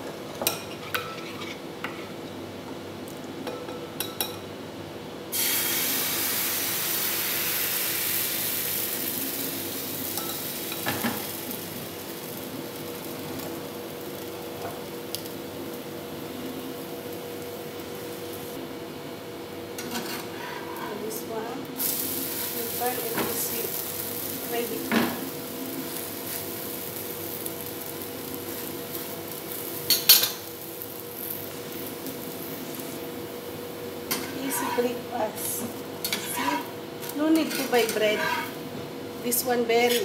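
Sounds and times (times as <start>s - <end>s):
batter sizzling in oil: 5.3s - 18.6s, 21.8s - 39.4s.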